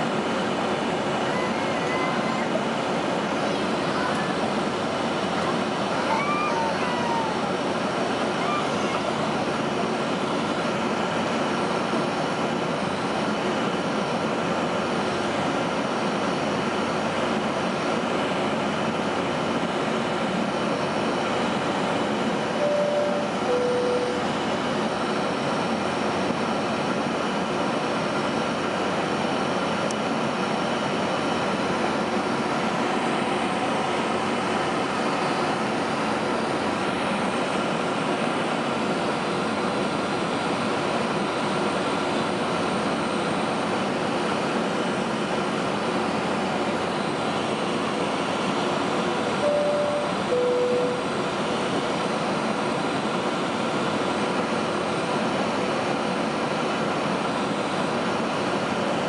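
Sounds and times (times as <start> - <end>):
airplane cabin engine rush: 0.0 - 59.0
two-note chime: 22.6 - 24.3, 49.4 - 51.1.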